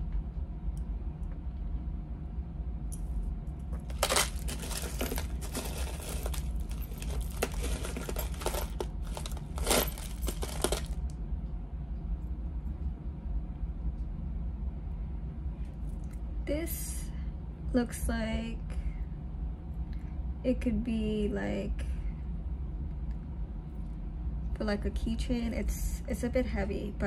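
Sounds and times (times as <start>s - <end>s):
steady low hum: 0.0s - 27.0s
jewelry clinking and rattling: 3.8s - 11.1s.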